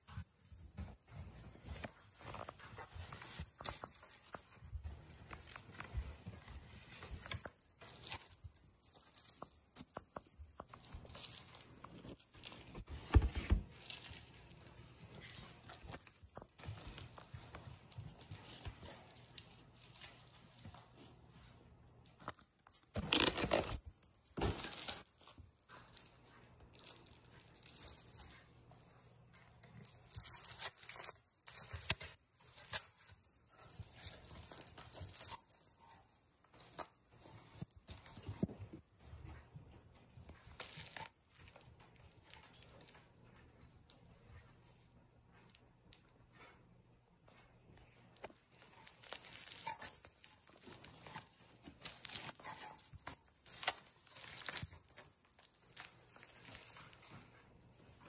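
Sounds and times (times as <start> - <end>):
cardboard and paper rustling: 0.0 - 42.9, 48.2 - 58.0.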